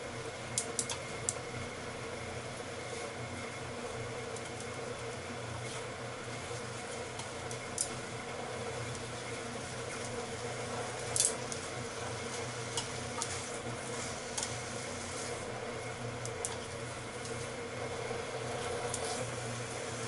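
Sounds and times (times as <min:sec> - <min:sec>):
steady hum: 0:00.0 - 0:20.0
meat frying in a pan: 0:00.1 - 0:20.0
chopsticks scraping a pan: 0:12.2 - 0:15.5, 0:18.5 - 0:19.4.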